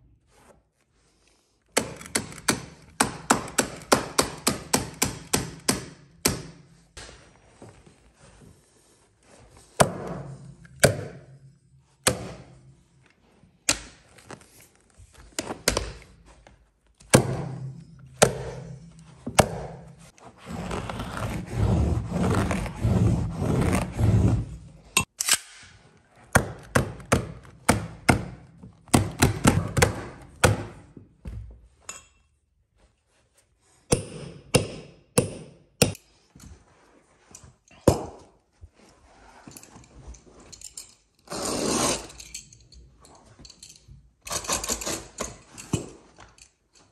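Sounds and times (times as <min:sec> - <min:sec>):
tools striking wooden stairs: 0:17.0 - 0:20.0.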